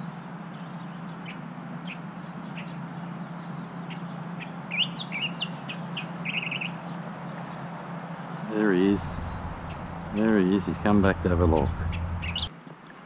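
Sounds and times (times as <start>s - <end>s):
small birds chirping: 0.0s - 12.8s
bird trill: 0.8s - 7.8s, 9.0s - 10.3s, 11.5s - 12.5s
steady low hum: 5.5s - 12.5s.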